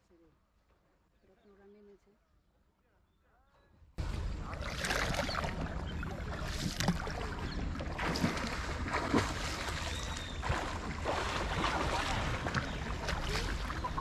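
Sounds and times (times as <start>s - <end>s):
water splashing around boat: 4.0s - 14.0s.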